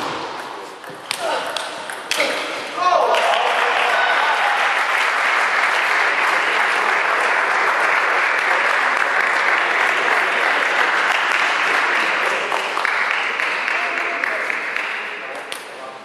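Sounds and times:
crowd applauding: 3.0 - 15.3.

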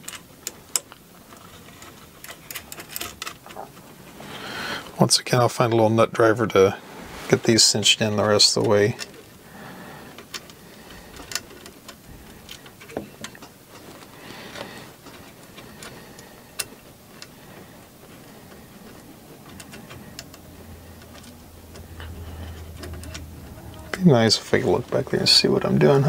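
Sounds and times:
small metal parts clicking: 0.0 - 4.2, 10.1 - 24.0.

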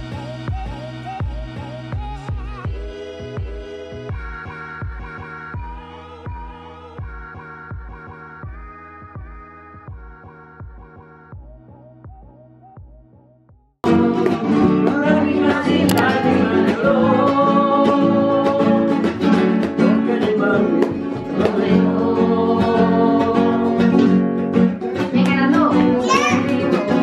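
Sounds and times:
person singing: 13.8 - 24.0, 25.1 - 27.0.

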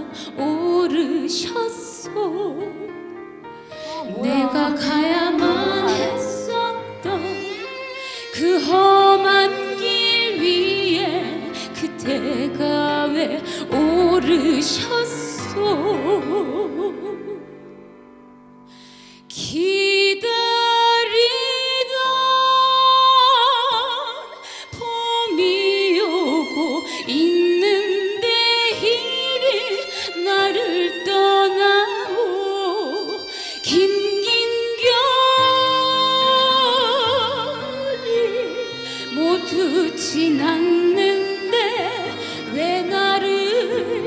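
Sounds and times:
woman singing a slow ballad: 0.0 - 3.0, 3.7 - 17.6, 19.2 - 44.0
instrumental backing: 0.0 - 19.2.

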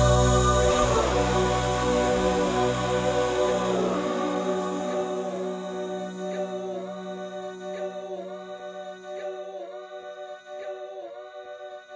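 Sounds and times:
held low note: 0.0 - 8.9
choir-like voices: 0.0 - 11.9.

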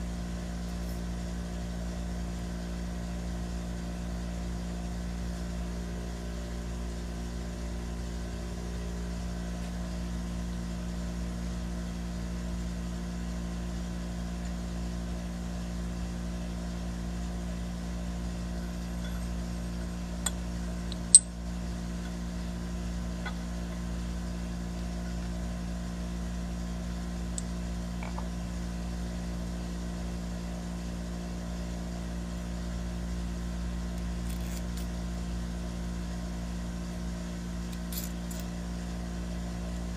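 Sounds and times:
steady low machine hum: 0.0 - 39.9
metal parts clicking together: 20.2 - 21.3, 34.2 - 34.9, 37.7 - 38.5.

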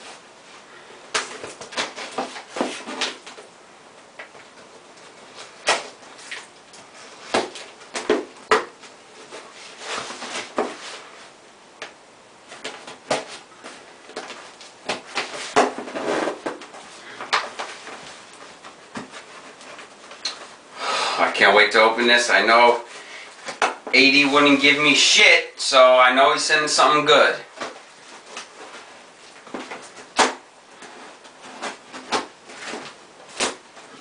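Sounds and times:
cardboard knocks and rustles: 12.5 - 20.5.

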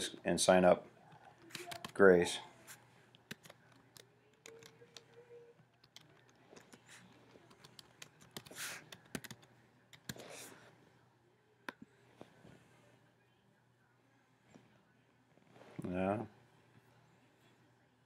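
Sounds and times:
typing on computer keyboard: 1.2 - 2.0, 3.3 - 5.2, 5.8 - 10.2.

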